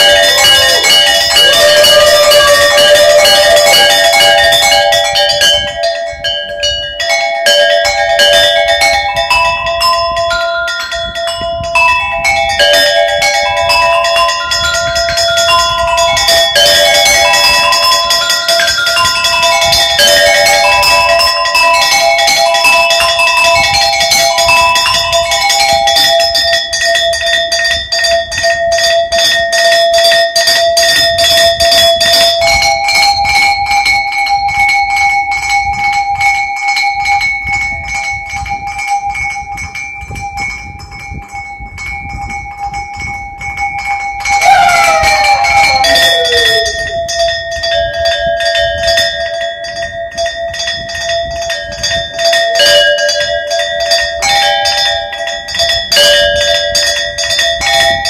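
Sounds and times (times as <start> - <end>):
copper cow bells tremolo: 0.0 - 58.0
pitch glide sweeping down: 44.4 - 47.0.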